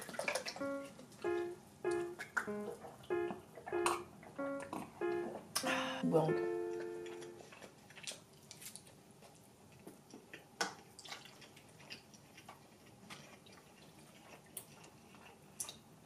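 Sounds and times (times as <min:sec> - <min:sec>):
wet chewing with mouth clicks: 0:06.9 - 0:16.0.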